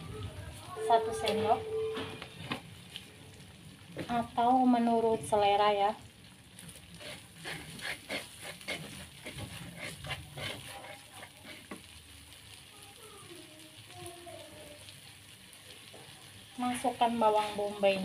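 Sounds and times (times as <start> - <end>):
paste sizzling in oil: 0.0 - 18.0
plastic spatula scraping a wok: 6.9 - 11.9, 16.6 - 18.0.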